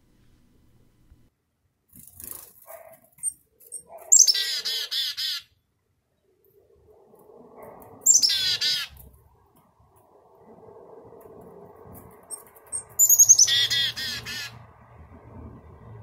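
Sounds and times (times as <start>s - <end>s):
chickadee calls: 3.8s - 5.5s, 7.9s - 9.1s, 12.3s - 14.7s.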